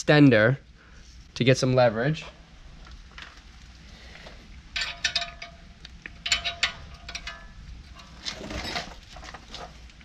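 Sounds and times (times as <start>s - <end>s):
metal wrench clinking: 4.8s - 8.9s.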